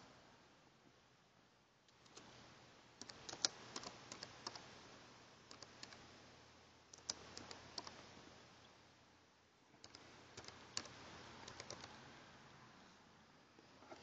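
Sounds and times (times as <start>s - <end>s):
computer keyboard typing: 3.0s - 4.7s, 5.5s - 6.0s, 6.9s - 8.1s, 9.8s - 12.0s.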